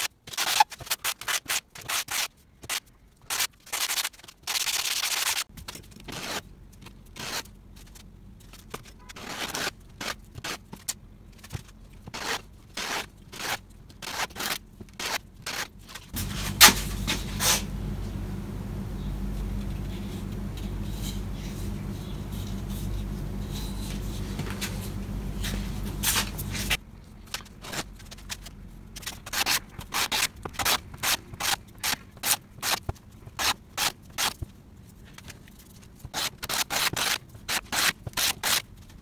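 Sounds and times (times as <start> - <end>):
scrapes: 0.0 - 17.8, 19.4 - 39.0
steady low hum: 5.5 - 33.8.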